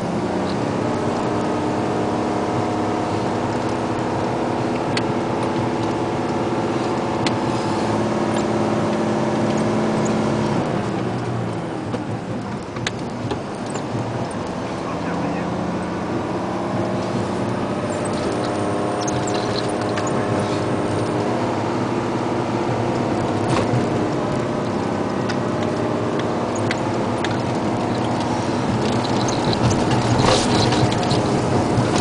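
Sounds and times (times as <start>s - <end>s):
diesel truck engine running: 0.0s - 32.0s
clicks and rattles: 17.4s - 21.4s, 22.9s - 32.0s.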